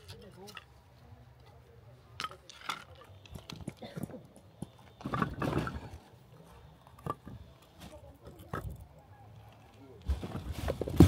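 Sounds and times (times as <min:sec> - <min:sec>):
firewood pieces knocking together: 0:02.2 - 0:06.0, 0:06.9 - 0:07.4, 0:08.2 - 0:08.8.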